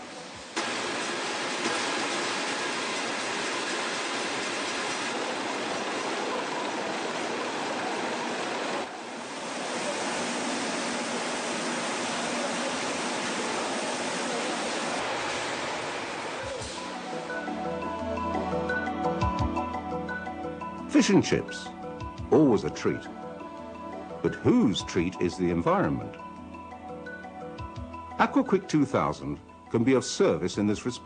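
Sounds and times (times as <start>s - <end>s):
high-pressure water spraying: 0.0s - 17.4s.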